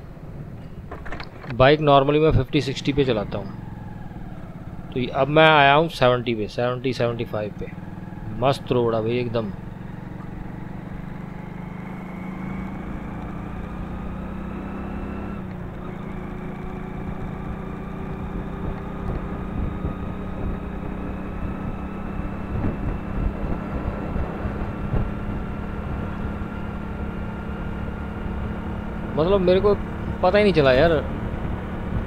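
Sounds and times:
motorcycle engine cruising: 0.1 - 32.0
wind buffeting microphone: 18.1 - 27.0.

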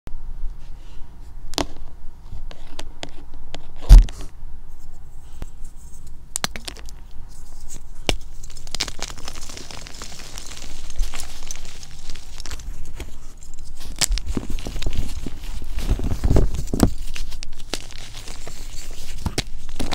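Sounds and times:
chalk crumbling and crunching: 4.7 - 19.9.

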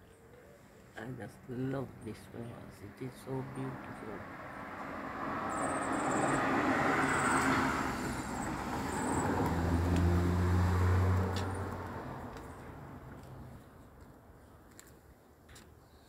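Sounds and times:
vehicle passing by: 2.2 - 13.7.

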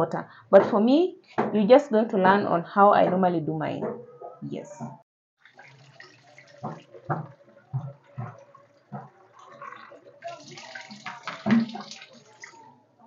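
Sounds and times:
tap water splashing into basin: 5.4 - 12.7
basin knocks: 6.1 - 12.2.

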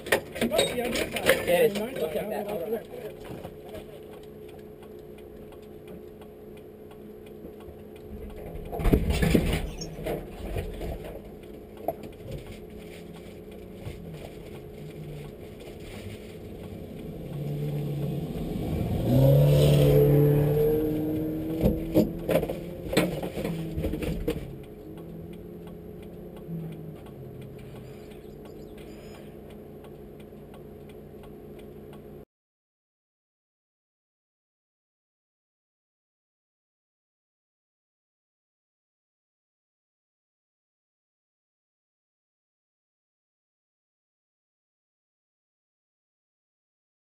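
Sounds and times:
sharp clanks and knocks: 8.1 - 12.6, 21.5 - 25.1
rally car passing at speed: 16.7 - 22.3.

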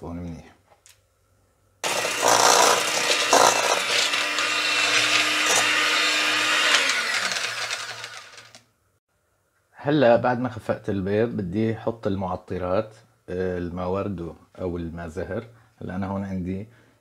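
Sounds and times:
electric hand mixer whining: 1.8 - 8.6.

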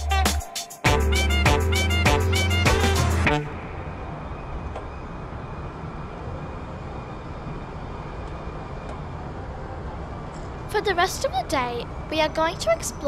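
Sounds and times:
traffic rumble: 3.2 - 13.0.

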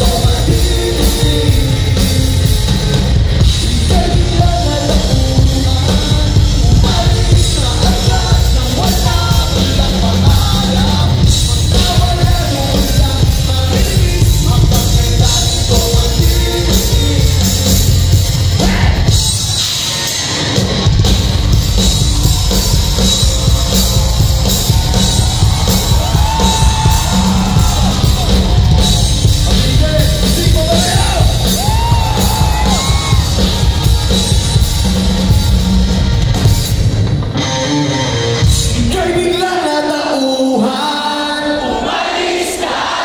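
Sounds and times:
singer singing into microphone: 0.0 - 19.2, 25.8 - 33.4, 38.6 - 43.0
crowd singing: 0.0 - 20.4, 21.3 - 35.5, 37.7 - 43.0
electric guitar: 0.0 - 39.4
bass guitar: 0.0 - 39.6
drums: 0.0 - 43.0.

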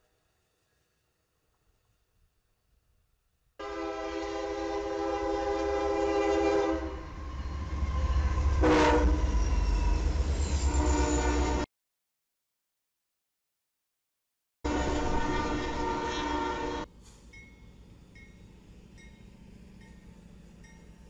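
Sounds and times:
locomotive air horn: 3.6 - 7.2, 8.4 - 9.5, 10.7 - 11.7, 14.7 - 16.9.

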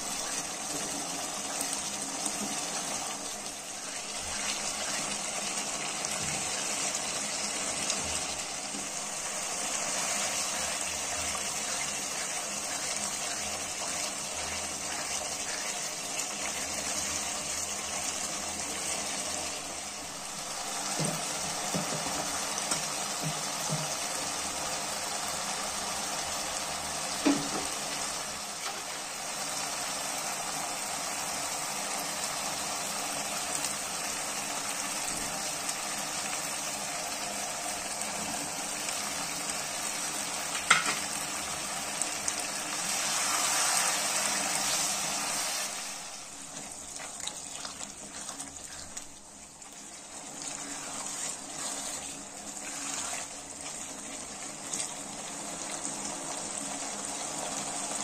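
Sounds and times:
meat sizzling in a wok: 0.0 - 58.0
wooden spatula stirring: 21.0 - 24.0, 45.6 - 55.8.

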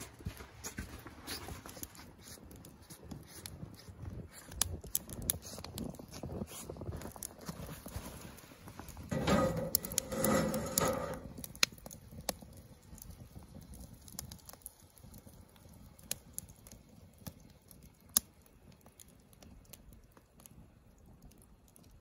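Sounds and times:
campfire crackling: 0.0 - 22.0
skillet scraping on grill grate: 6.3 - 11.7.

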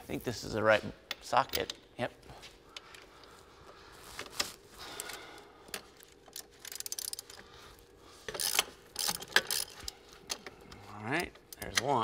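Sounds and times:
socket ratchet clicking: 6.1 - 7.4, 8.3 - 9.9.

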